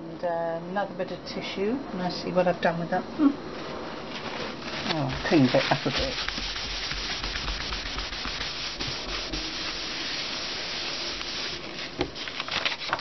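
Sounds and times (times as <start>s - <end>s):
tissue rubbing on paper: 3.6s - 13.0s.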